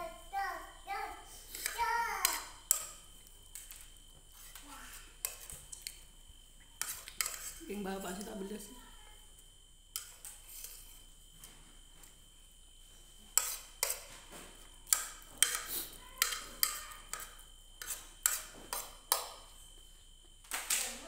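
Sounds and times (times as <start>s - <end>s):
spoon clinking against a plate: 6.8s - 7.6s, 14.9s - 19.4s.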